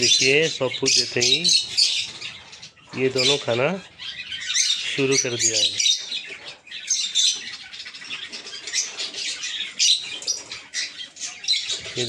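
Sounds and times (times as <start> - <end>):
birds chirping and squawking: 0.0 - 12.0.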